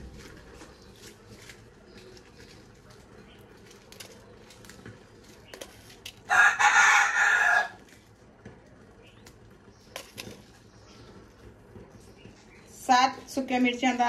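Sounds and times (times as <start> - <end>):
rooster crowing: 6.3 - 7.8.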